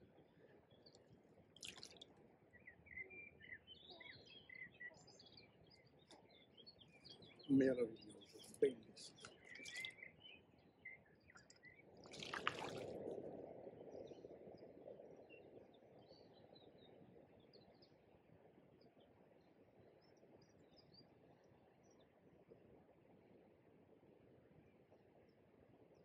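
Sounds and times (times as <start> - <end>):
small birds chirping faintly: 0.0 - 26.0
water sloshing: 1.6 - 2.1, 12.0 - 13.1
fish splashing in shallow water: 1.6 - 2.2, 9.2 - 10.0, 12.0 - 13.1.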